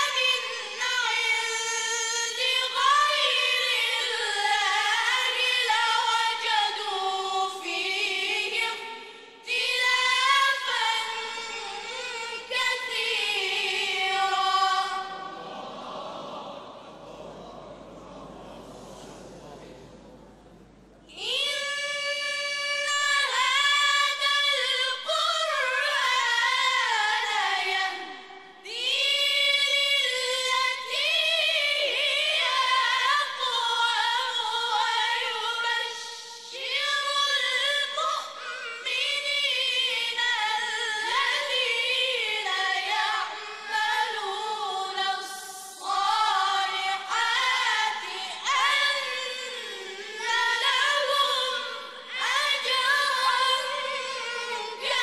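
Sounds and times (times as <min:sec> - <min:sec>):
boys chanting recitation: 0:14.8 - 0:20.9.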